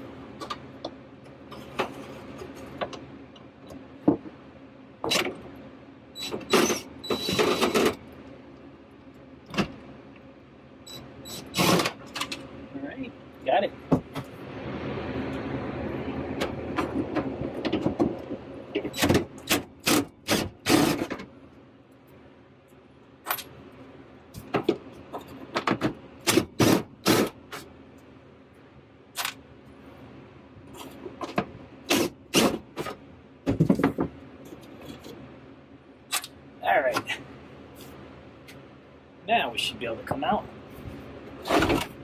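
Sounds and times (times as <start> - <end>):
clicks and clunks of metal parts: 23.2 - 23.5, 29.2 - 29.4, 36.1 - 37.1.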